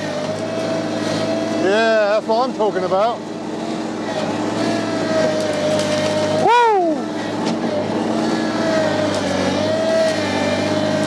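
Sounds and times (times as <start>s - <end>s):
tractor engine running under load: 0.0s - 11.0s
whooping cry: 6.4s - 7.1s.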